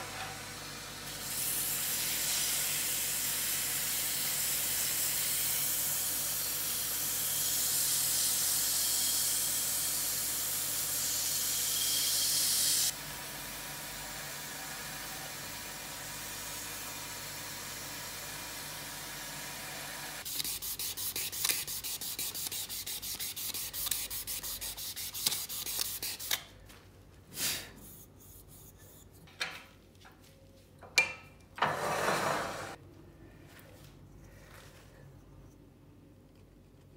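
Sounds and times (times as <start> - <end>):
fast rubbing strokes: 20.2 - 26.4, 27.8 - 29.3
short sanding scrapes: 20.3 - 26.4.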